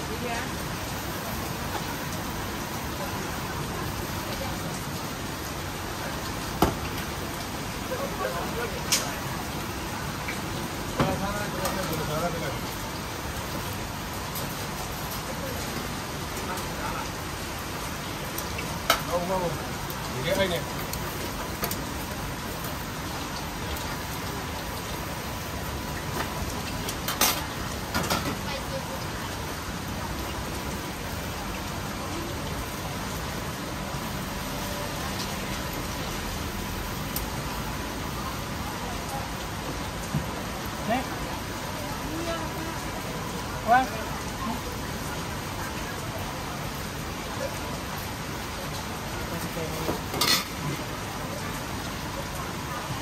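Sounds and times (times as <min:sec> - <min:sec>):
lobster sizzling on a grill: 0:00.0 - 0:31.1, 0:43.5 - 0:46.0, 0:49.2 - 0:51.2.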